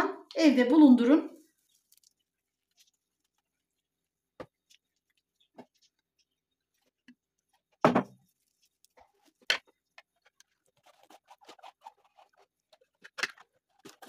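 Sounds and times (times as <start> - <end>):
plastic jug thud: 7.8 - 8.2
plastic cap clicking and scraping: 8.9 - 14.0.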